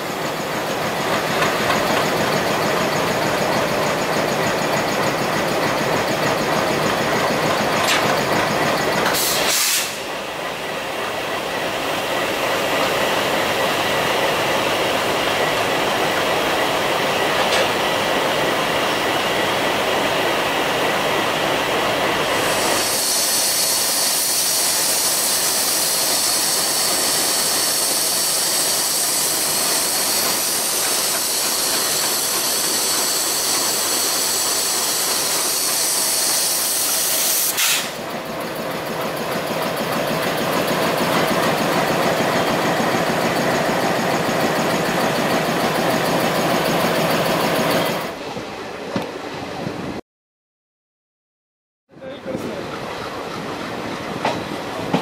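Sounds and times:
train wheels clattering over rails: 0.0s - 49.2s, 52.3s - 55.0s
diesel locomotive passing: 0.0s - 50.0s, 52.0s - 55.0s
strong hiss: 9.1s - 10.2s, 22.3s - 38.1s.

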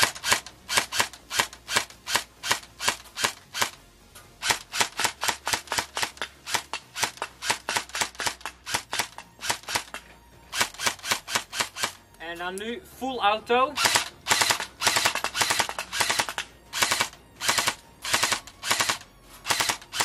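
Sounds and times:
airsoft gun single shots: 13.8s - 20.0s.

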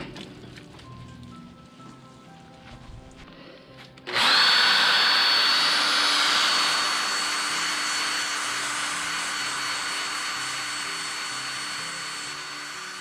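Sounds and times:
cordless drill whining: 4.0s - 13.0s.

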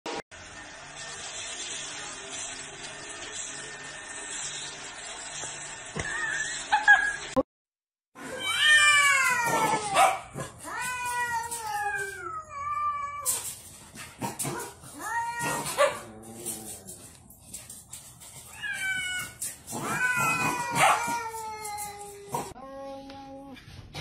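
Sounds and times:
cats yowling: 8.2s - 13.4s, 14.9s - 17.1s, 18.5s - 22.6s.

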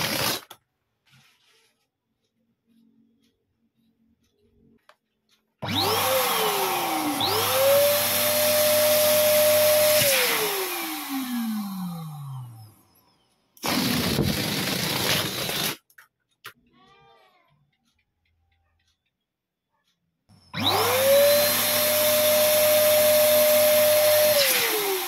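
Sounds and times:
electric pump motor whine: 5.6s - 13.0s, 20.5s - 25.0s.

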